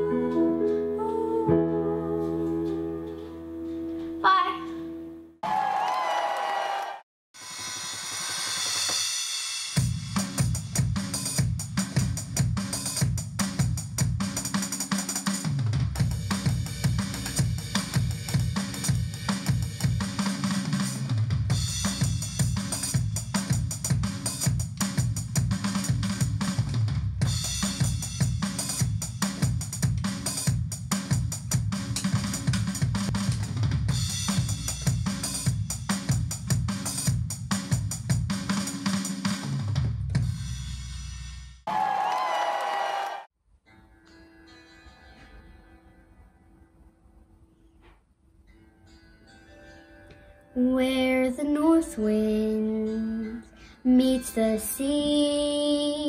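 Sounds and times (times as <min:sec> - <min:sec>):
electronic drum beat: 0:07.6 - 0:40.4.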